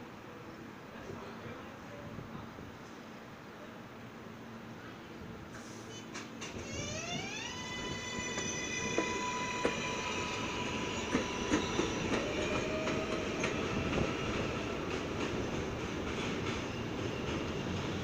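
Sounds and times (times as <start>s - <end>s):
train wheels rumbling: 5.6s - 18.0s
electric train motor whine: 6.6s - 13.0s
wheels clacking over rail joints: 8.3s - 18.0s.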